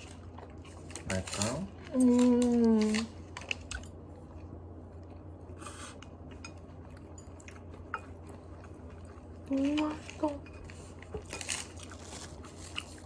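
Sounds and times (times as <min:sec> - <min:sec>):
chewing food: 0:00.0 - 0:13.0
low steady hum: 0:00.0 - 0:13.0.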